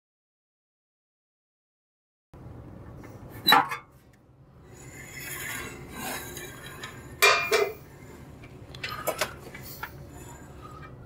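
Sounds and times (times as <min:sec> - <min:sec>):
metal rasping scrape: 0:04.6 - 0:08.3, 0:09.0 - 0:11.0.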